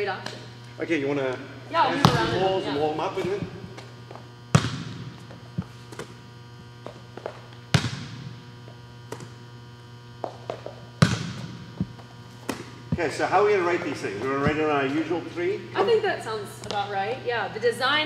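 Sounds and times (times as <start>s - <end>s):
mains hum: 0.0s - 18.0s
volleyball smacks echoing: 1.9s - 2.6s, 4.5s - 6.2s, 6.8s - 8.5s, 9.1s - 9.4s, 10.2s - 13.2s.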